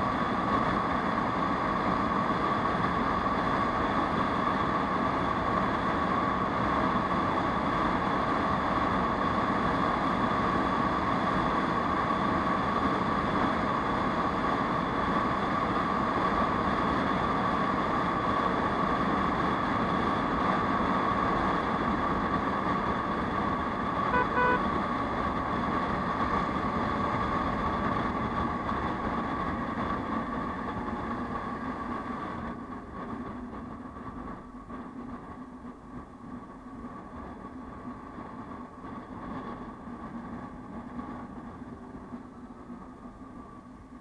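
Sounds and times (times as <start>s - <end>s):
scooter engine with wind rush: 0.0s - 44.0s
horn short beeps: 24.1s - 24.6s.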